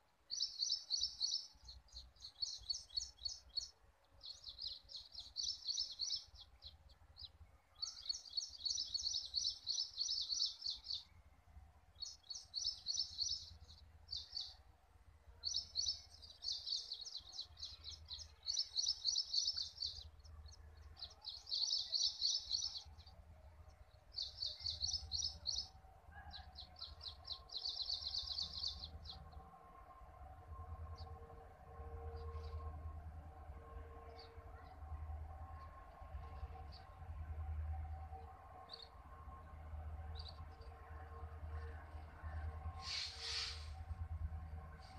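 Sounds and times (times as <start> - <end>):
distant diesel locomotive drone: 0.0 - 44.9
bird chirping in rapid trills: 0.3 - 11.2, 12.0 - 14.6, 15.4 - 23.2, 24.1 - 25.7, 26.4 - 29.4.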